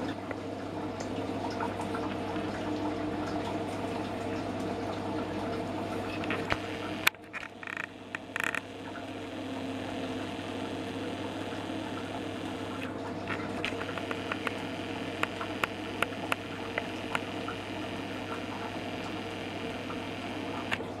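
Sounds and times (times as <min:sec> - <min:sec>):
steady low hum: 0:06.0 - 0:21.0.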